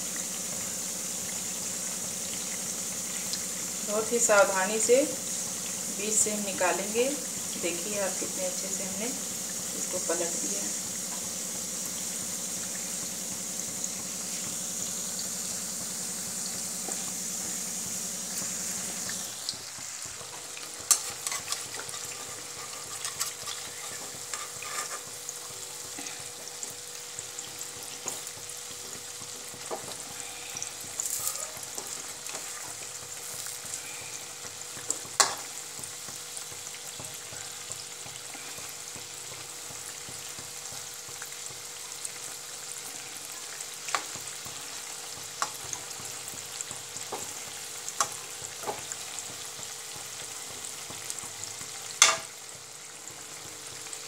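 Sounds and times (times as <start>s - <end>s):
fritters sizzling in oil: 0.0s - 54.0s
metal spoon clicking on pan: 52.0s - 52.3s.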